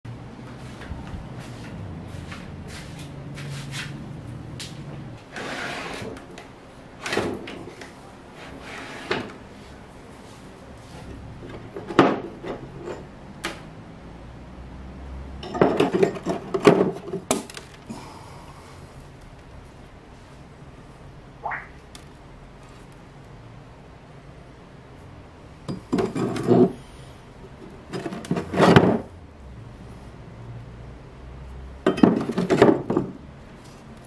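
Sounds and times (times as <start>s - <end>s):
wooden drawer sliding open: 8.5s - 9.4s
iron tools knocking and clinking: 15.4s - 17.4s, 31.8s - 33.1s
metal on wood clatter: 15.4s - 17.8s, 25.7s - 26.8s, 27.9s - 29.1s, 31.8s - 33.2s.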